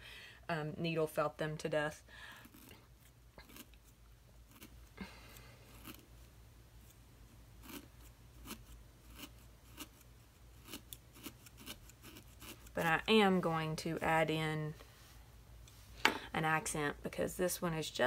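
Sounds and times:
felting needle scratchy crunches: 0:02.4 - 0:14.1.

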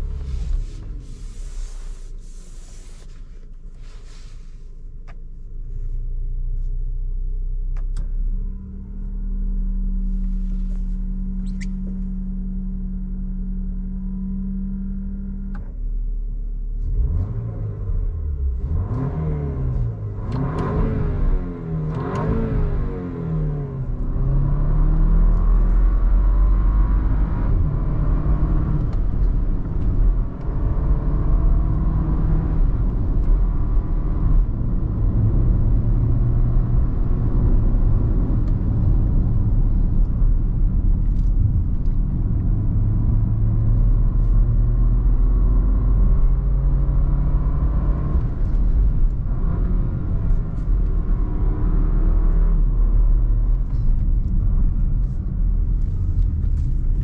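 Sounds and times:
road and tyre rumble: 0:00.0 - 0:57.0
car engine revving: 0:16.8 - 0:57.0.

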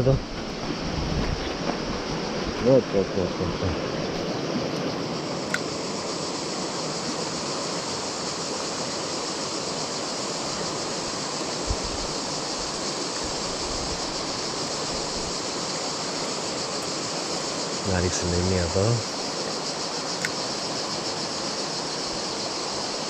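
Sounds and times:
river rushing over rocks: 0:00.0 - 0:17.9.

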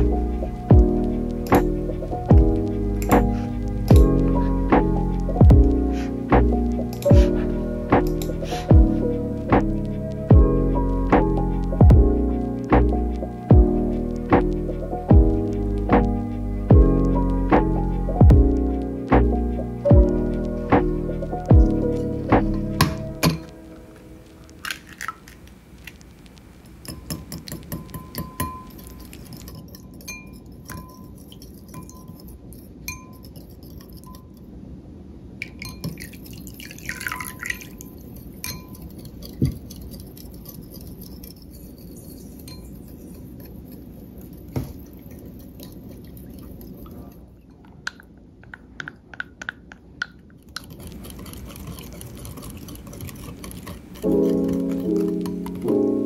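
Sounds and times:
wet swishing of egg mixture: 0:24.6 - 0:34.2, 0:35.9 - 0:47.6, 0:50.4 - 0:56.0
whisk clinking against glass bowl: 0:26.9 - 0:34.4, 0:35.4 - 0:47.1, 0:50.6 - 0:56.0.

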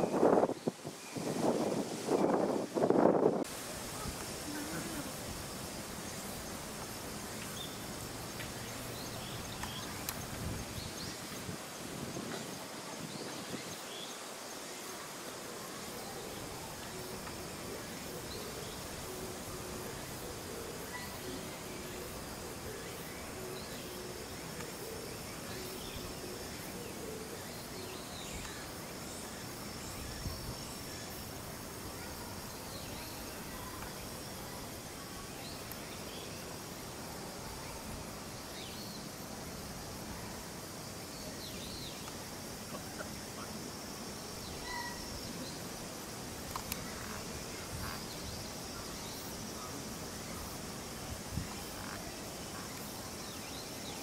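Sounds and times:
wind rumble on microphone: 0:00.0 - 0:04.2, 0:09.4 - 0:13.8
background hiss: 0:00.0 - 0:54.0
insects chirring: 0:00.0 - 0:54.0
faint murmur of voices: 0:03.5 - 0:05.6
faint clicks: 0:09.5 - 0:10.4, 0:46.4 - 0:47.2
high-pitched insect trill: 0:27.4 - 0:54.0.

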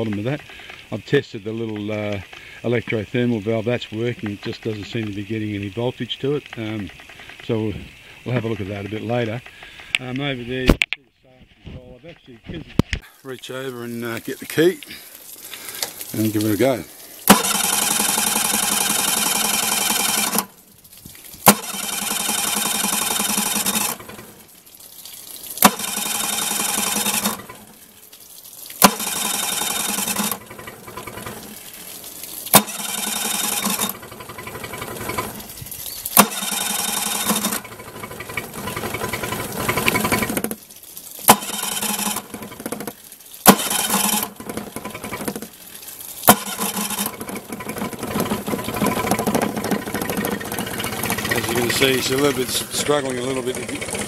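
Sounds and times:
outboard motor cranking: 0:13.9 - 0:24.7, 0:25.4 - 0:28.0, 0:28.7 - 0:54.0
sharp starter clack: 0:17.2 - 0:20.5, 0:21.4 - 0:24.3, 0:25.6 - 0:27.6, 0:28.8 - 0:31.4, 0:32.5 - 0:35.4, 0:36.2 - 0:40.6, 0:41.2 - 0:45.5, 0:46.2 - 0:52.4.

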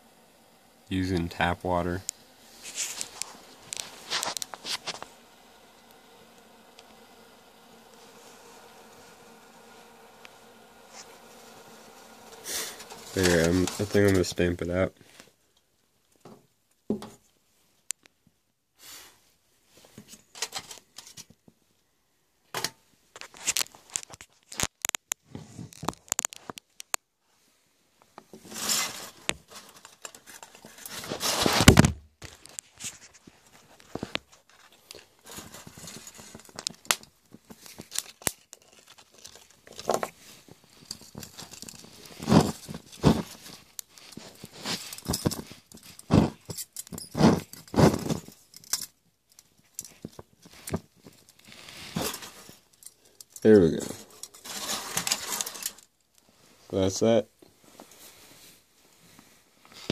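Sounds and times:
aluminium foil crinkling: 0:01.4 - 0:14.5, 0:23.2 - 0:27.0, 0:28.5 - 0:56.2.

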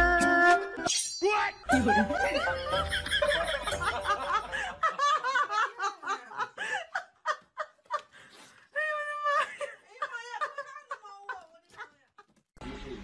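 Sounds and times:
person laughing and giggling: 0:01.7 - 0:08.1.

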